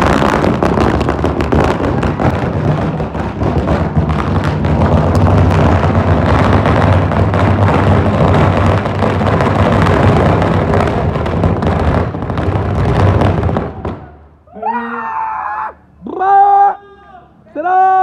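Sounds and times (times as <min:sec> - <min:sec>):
firecrackers crackling: 0:00.0 - 0:14.5
person shouting: 0:14.5 - 0:18.0.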